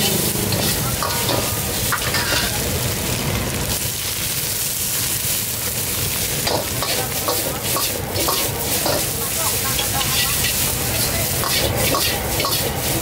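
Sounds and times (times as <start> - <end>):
ladle scraping and clinking on wok: 0.0 - 2.8, 6.4 - 13.0
food sizzling in a wok: 0.0 - 13.0.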